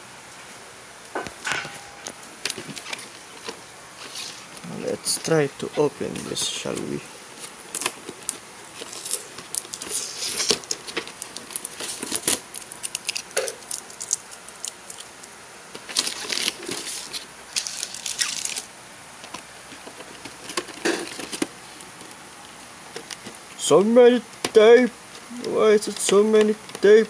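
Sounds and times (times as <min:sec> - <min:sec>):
cardboard scraping: 0:05.9 - 0:12.4
tape ripping: 0:06.0 - 0:15.1, 0:15.8 - 0:18.7.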